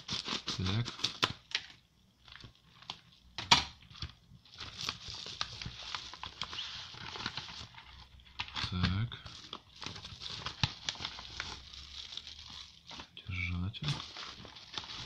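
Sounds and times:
packaging crinkling and tearing: 0:00.0 - 0:15.0.

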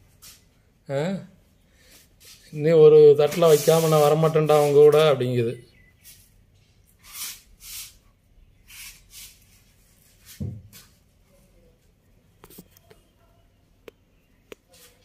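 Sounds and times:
dull thump: 0:10.4 - 0:10.8.

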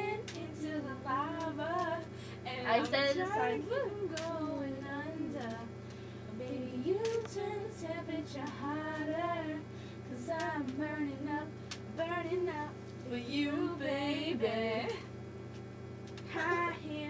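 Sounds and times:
girls singing: 0:00.0 - 0:05.7, 0:06.4 - 0:15.0.

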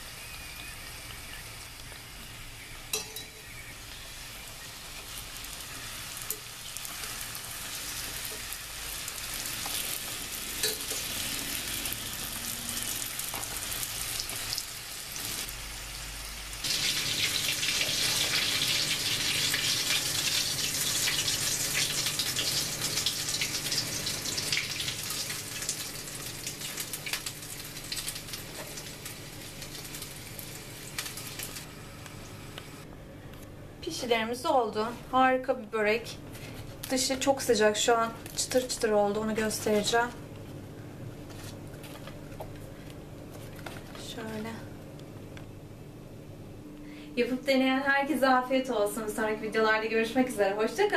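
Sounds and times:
pastries sizzling in oil: 0:00.0 - 0:32.8.

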